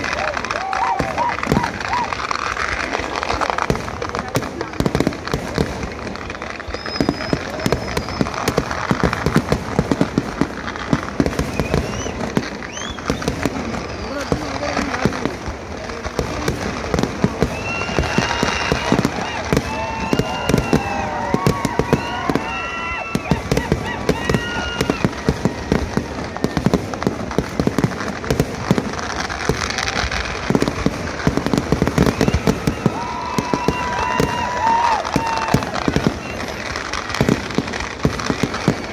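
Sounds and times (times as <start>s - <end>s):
fireworks bangs and crackles: 0.0s - 38.9s
fireworks high whistles: 0.0s - 38.9s
steady high whistle: 6.2s - 8.5s, 11.4s - 14.8s.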